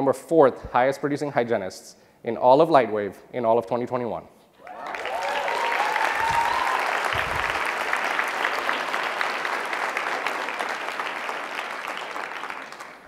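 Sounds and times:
person cheering: 0:04.6 - 0:07.9
audience applauding: 0:04.6 - 0:13.0.

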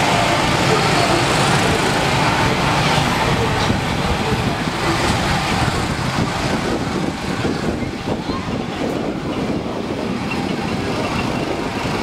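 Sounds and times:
amusement park din: 0:00.0 - 0:12.0.

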